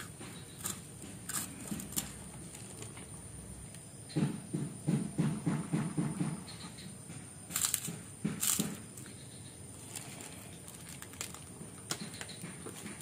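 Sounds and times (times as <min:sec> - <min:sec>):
cracker crunching: 0:00.0 - 0:03.8, 0:07.5 - 0:09.1, 0:09.7 - 0:13.0
plastic bag crinkling: 0:09.8 - 0:11.6.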